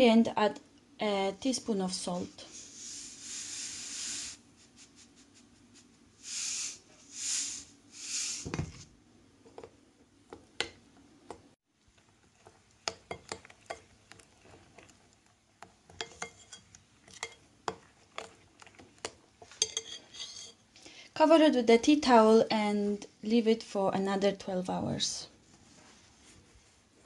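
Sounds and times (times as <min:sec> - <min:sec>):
salt pouring in hissing bursts: 0:02.5 - 0:05.2, 0:06.2 - 0:08.5
thump: 0:08.4 - 0:08.8.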